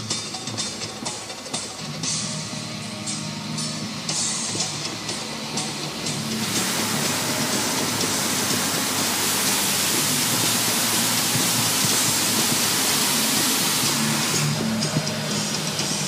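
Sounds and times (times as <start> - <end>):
water jets spraying on car: 6.1 - 16.0.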